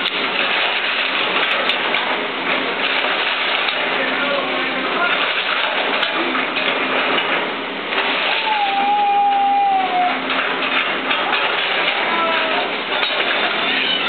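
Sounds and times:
excavator engine: 0.0 - 14.0
drawn-out squeal: 8.3 - 10.3.

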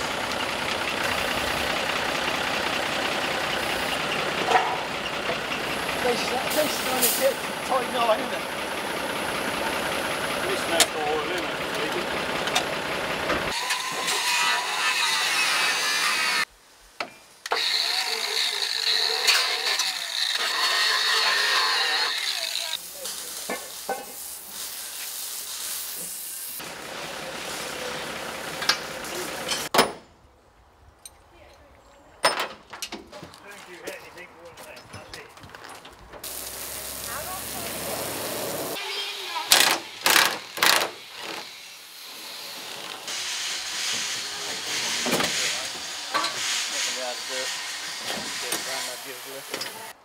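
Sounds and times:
air impact wrench burst: 6.4 - 7.4, 36.2 - 49.9
air hissing: 6.5 - 7.4, 22.8 - 26.6, 36.2 - 38.8, 40.8 - 49.9
steady hissing: 22.8 - 26.6, 36.2 - 39.4.

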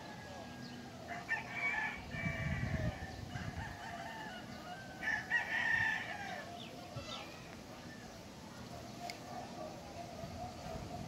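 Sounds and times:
rooster crowing: 0.0 - 6.5.

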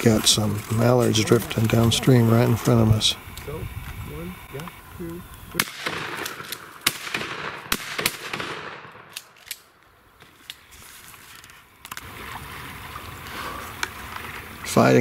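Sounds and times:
shotgun shots: 5.6 - 9.4.

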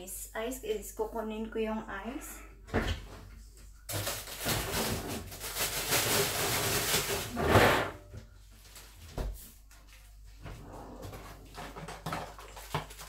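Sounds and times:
ice rattling and rustling: 3.9 - 7.5.

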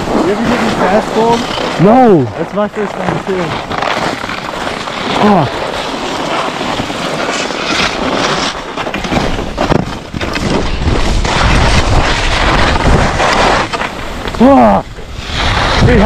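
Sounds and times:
skis scraping over snow: 0.0 - 16.0
wind buffeting microphone: 9.0 - 16.0.

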